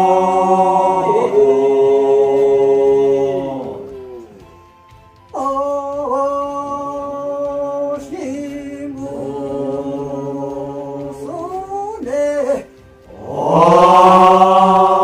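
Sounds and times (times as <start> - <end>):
person singing unaccompanied: 5.3 - 15.0.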